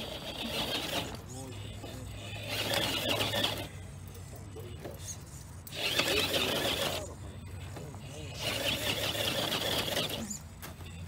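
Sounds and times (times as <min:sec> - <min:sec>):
electric motor and gears whirring: 0:00.0 - 0:11.0.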